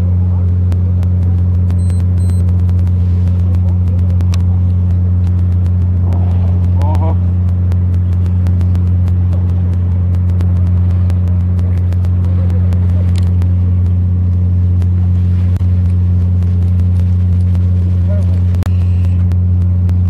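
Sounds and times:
boat engine running: 0:00.0 - 0:20.0
faint ticks: 0:03.5 - 0:17.6.

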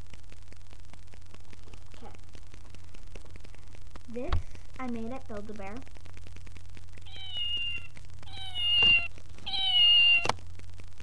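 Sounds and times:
toy recorded meow: 0:07.0 - 0:10.4.

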